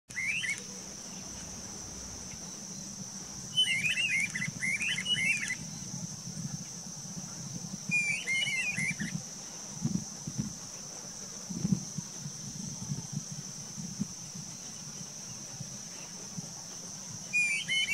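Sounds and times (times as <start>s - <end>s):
birds calling sharp notes: 0.1s - 0.7s, 3.5s - 5.8s, 7.9s - 9.2s, 17.3s - 17.9s
high insect drone: 0.1s - 17.9s.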